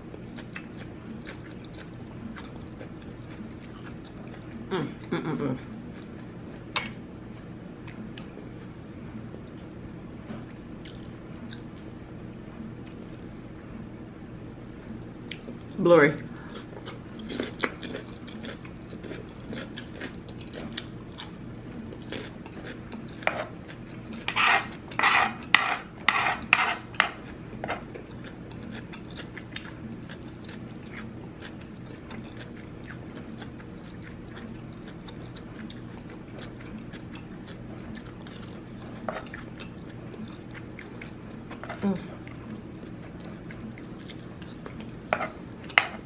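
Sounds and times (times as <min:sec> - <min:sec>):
low steady hum: 0:00.0 - 0:46.0
spoon clicks and scrapes: 0:24.2 - 0:27.8.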